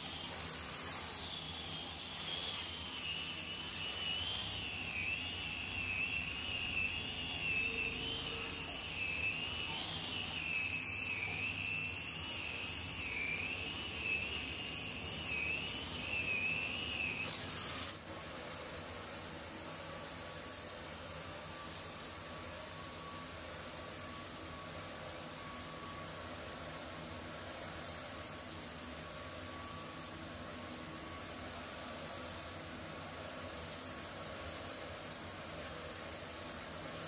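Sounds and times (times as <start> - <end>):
angle grinder motor whine: 0.0 - 18.0.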